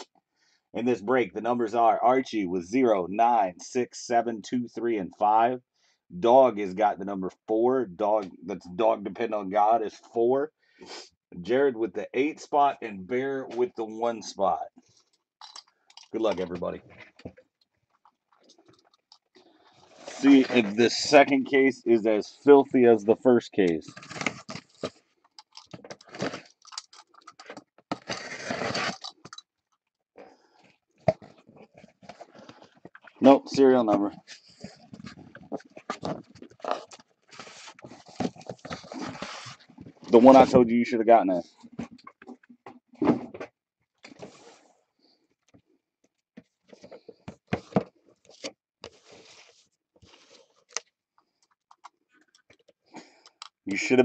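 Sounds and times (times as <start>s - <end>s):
cardboard scraping and rustling: 19.9s - 21.0s, 27.9s - 29.1s, 34.2s - 40.4s.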